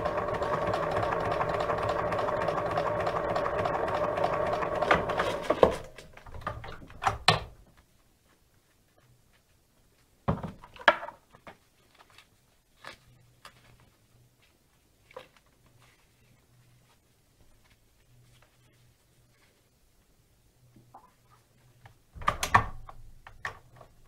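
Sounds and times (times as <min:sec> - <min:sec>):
sewing machine running: 0:00.0 - 0:05.9.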